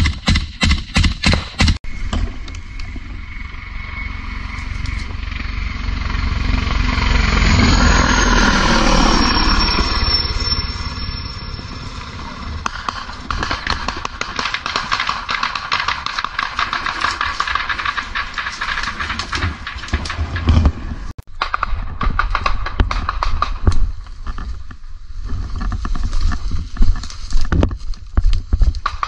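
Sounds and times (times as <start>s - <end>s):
helicopter passing overhead: 1.9s - 21.1s
gunfire crackle: 12.6s - 24.1s, 28.8s - 29.0s.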